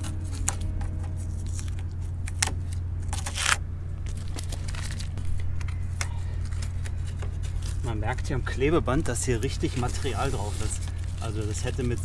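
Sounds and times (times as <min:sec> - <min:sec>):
tape tearing rip: 0:00.0 - 0:07.9
steady low hum: 0:00.0 - 0:12.0
tape peeling crackles: 0:00.0 - 0:12.0.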